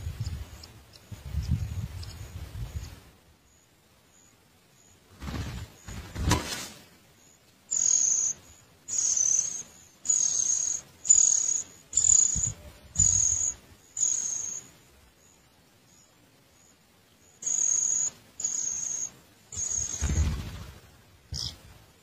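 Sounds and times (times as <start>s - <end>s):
rustling: 5.2s - 7.0s
nestlings hissing begging calls: 7.7s - 15.4s, 17.2s - 20.1s, 21.3s - 21.6s.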